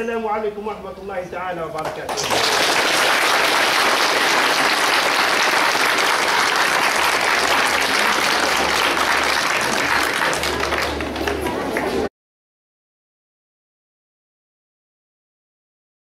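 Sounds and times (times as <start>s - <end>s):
children applauding: 2.1s - 12.1s.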